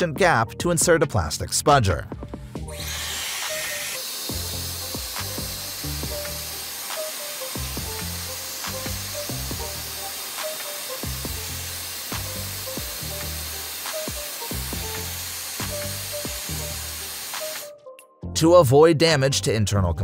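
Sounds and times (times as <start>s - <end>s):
background music with beat: 0.0s - 18.6s
hair dryer blowing: 2.5s - 17.8s.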